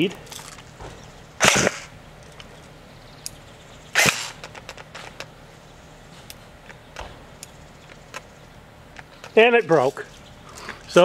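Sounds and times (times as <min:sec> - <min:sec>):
airsoft gun firing burst: 0:01.4 - 0:02.0, 0:03.9 - 0:04.6.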